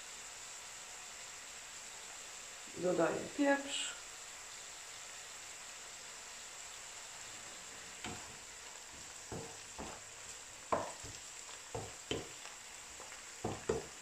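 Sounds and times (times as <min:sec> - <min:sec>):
greens sizzling in oil: 0:00.0 - 0:14.0
wooden spoon scraping a pan: 0:08.0 - 0:14.0.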